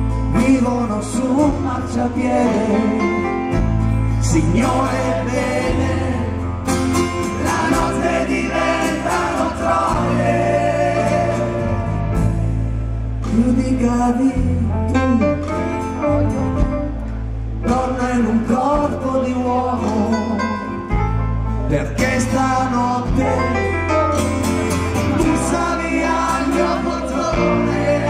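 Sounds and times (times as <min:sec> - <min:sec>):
man singing: 0:00.0 - 0:03.6, 0:04.2 - 0:06.5, 0:13.2 - 0:15.8, 0:17.6 - 0:21.0, 0:21.6 - 0:28.0
bass line: 0:00.0 - 0:28.0
strummed acoustic guitar: 0:00.0 - 0:28.0.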